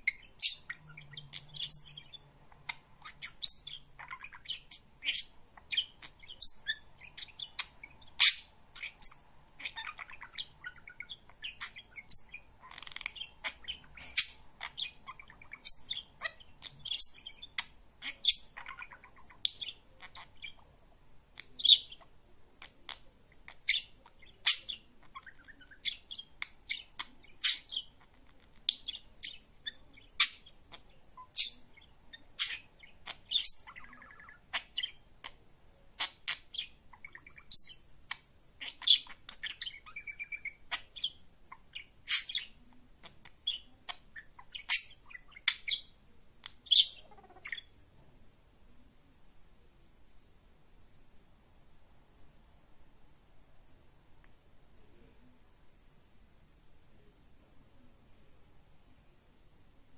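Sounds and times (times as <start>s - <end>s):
budgerigar chirping: 0.0s - 20.6s, 21.4s - 35.4s, 36.0s - 47.8s.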